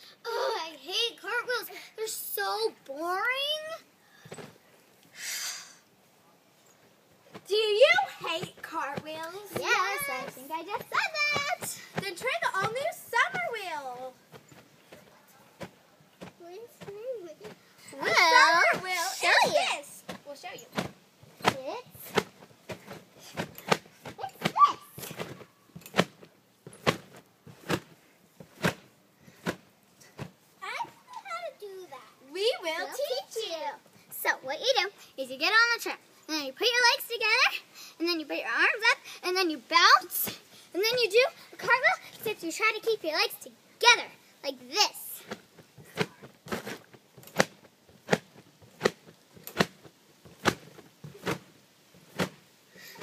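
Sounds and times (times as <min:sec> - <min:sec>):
feet thumping on trampoline: 0:07.2 - 0:31.1, 0:45.1 - 0:53.0.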